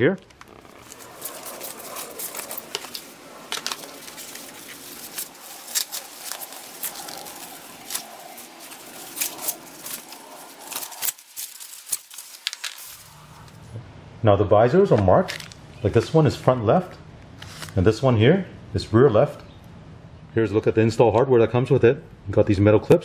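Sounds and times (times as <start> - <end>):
plastic wrap crinkling: 0.0 - 13.6, 15.3 - 15.6.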